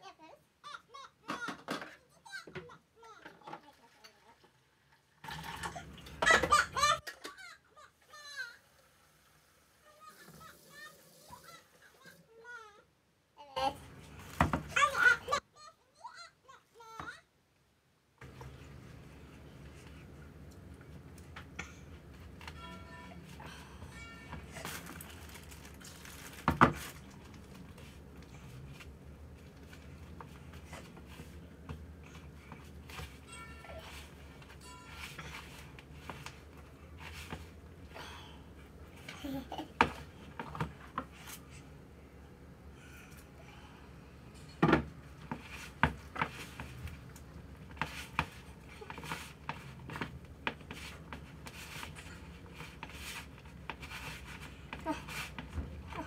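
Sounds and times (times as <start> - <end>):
hands kneading dough: 45.1 - 56.0.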